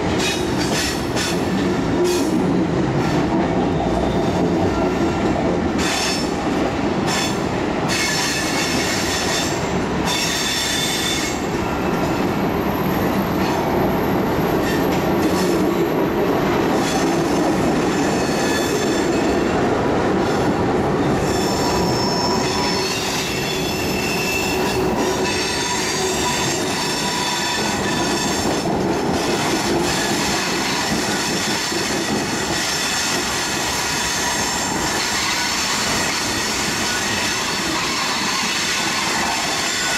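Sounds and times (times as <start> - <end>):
train wheels rumbling on rail: 0.0 - 39.9
high wheel squeals: 21.2 - 28.5.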